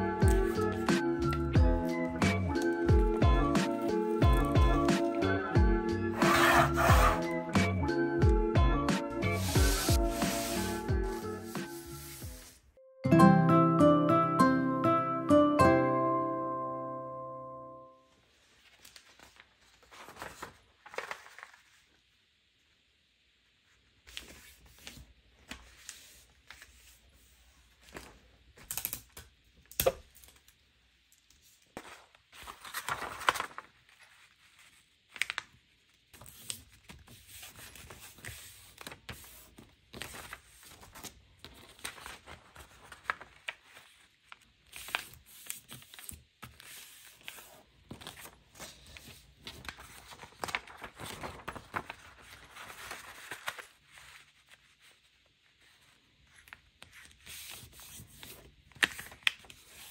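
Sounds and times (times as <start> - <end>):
paper rustling and creasing: 6.1 - 7.3, 9.2 - 12.6, 18.3 - 22.0, 31.4 - 59.9.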